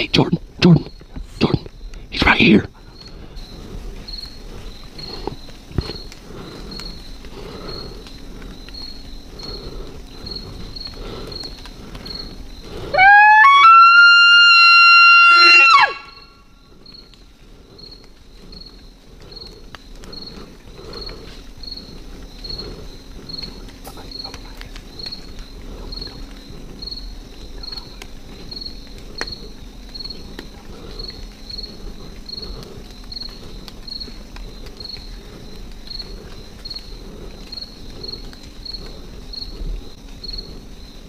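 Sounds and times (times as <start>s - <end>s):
insects chirping: 0.0s - 41.0s
elk bugling: 9.3s - 16.6s.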